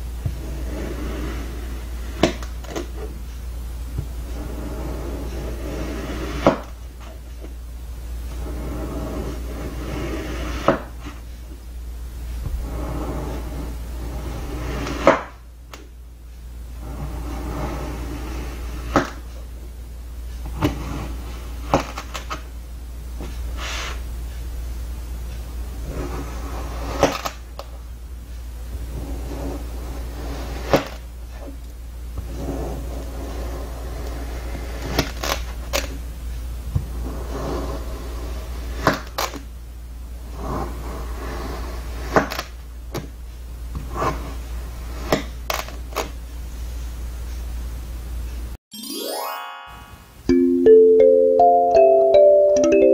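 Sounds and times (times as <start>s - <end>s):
short scraping hiss: 23.6s - 24.0s.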